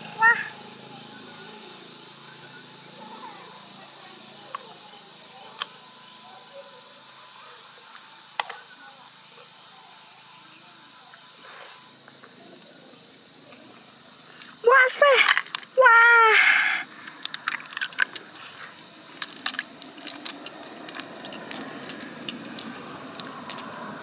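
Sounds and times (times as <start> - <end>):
insects chirring: 0.0 - 24.0
mussel shells clicking: 14.4 - 15.8, 16.8 - 24.0.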